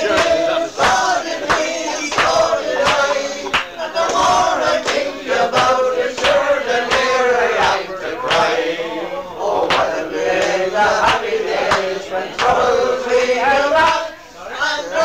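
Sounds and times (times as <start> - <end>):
sharp rhythmic knocks: 0.0 - 8.5
men singing together: 0.0 - 15.0.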